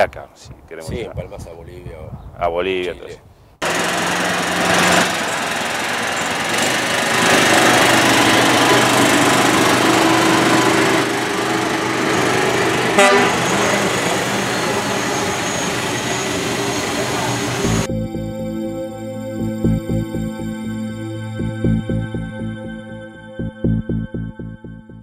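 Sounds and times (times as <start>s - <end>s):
small rail cart engine running: 3.6s - 17.9s.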